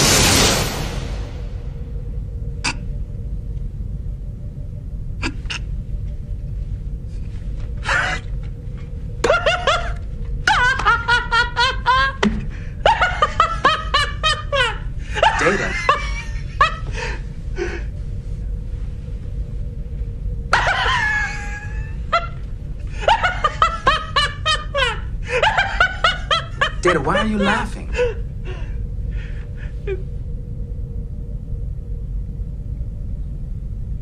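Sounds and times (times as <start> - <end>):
steady low hum: 0.0 - 34.0
man laughing: 12.9 - 16.9, 23.0 - 28.2.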